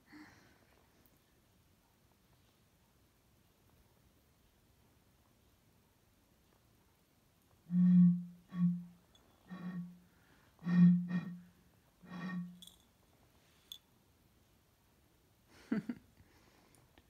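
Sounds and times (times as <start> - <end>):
hollow hoots from blown bottle: 7.7 - 10.0, 10.6 - 12.6.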